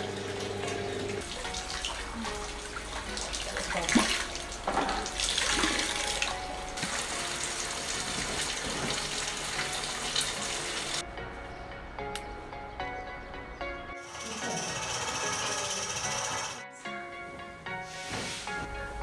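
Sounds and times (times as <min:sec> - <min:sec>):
water splashing off wet cloth: 0:00.4 - 0:11.0.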